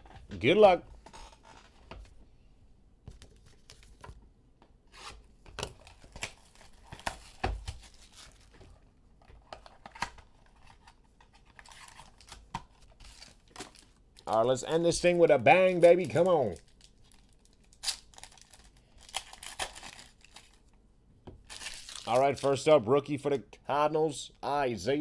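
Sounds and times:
packaging crinkling and tearing: 0:05.0 - 0:08.6, 0:09.5 - 0:14.4, 0:15.0 - 0:20.7, 0:21.4 - 0:22.5.

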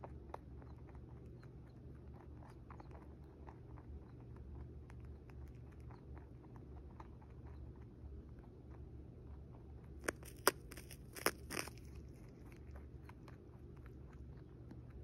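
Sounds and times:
low steady hum: 0:00.0 - 0:15.0
rabbit chewing hay: 0:00.0 - 0:15.0.

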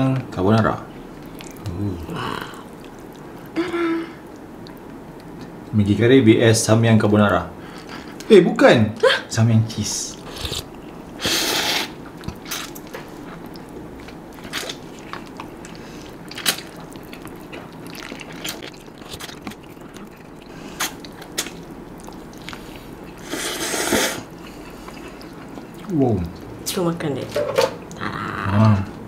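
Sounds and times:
chewing: 0:01.1 - 0:03.6, 0:04.2 - 0:05.7, 0:10.1 - 0:11.2, 0:12.0 - 0:23.4, 0:24.2 - 0:26.5
slurping noodles: 0:10.3 - 0:12.7, 0:23.2 - 0:24.3.

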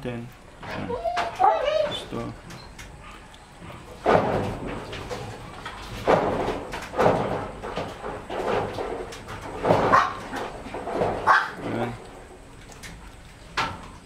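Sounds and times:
puppy yelping and crying: 0:00.8 - 0:02.1.

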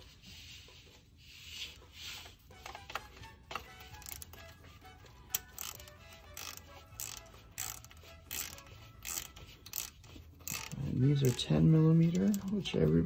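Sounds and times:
socket ratchet clicking: 0:05.1 - 0:11.5.

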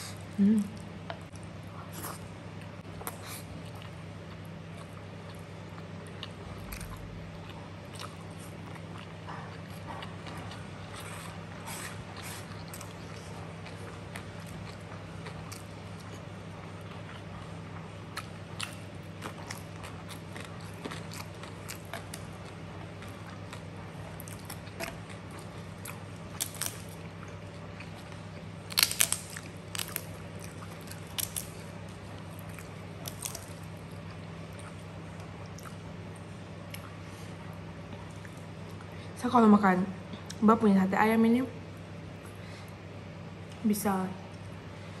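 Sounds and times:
steady low hum: 0:00.0 - 0:45.0
crisps crunching while chewed: 0:01.0 - 0:39.0.

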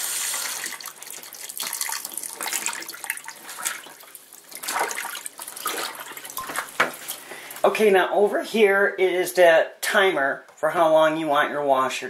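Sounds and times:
water dripping and splashing in tub: 0:00.0 - 0:07.8.

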